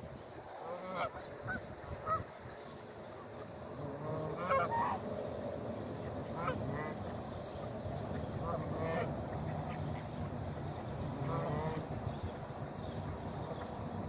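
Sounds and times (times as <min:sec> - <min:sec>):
geese honking: 0:00.6 - 0:02.3, 0:03.7 - 0:05.2, 0:06.3 - 0:07.2, 0:08.2 - 0:12.0.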